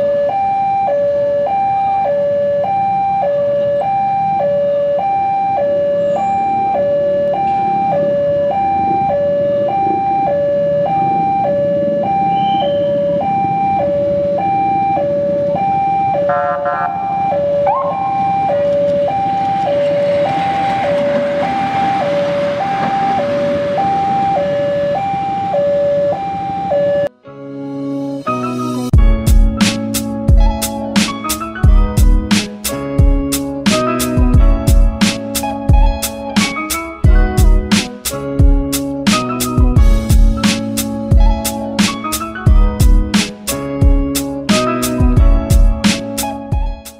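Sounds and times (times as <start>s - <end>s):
level crossing two-tone alarm: 0.0s - 27.1s
diesel locomotive rumble: 16.3s - 26.9s.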